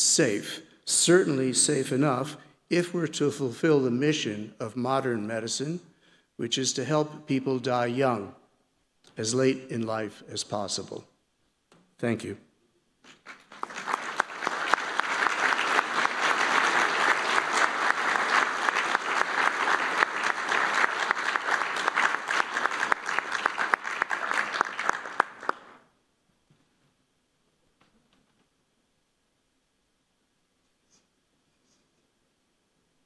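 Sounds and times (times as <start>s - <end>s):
audience applauding: 13.1s - 25.8s.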